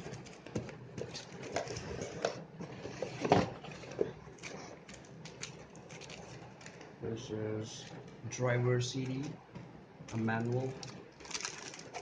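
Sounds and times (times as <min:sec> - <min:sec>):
tissue paper and plastic rustling: 0:01.0 - 0:06.9, 0:10.1 - 0:12.0.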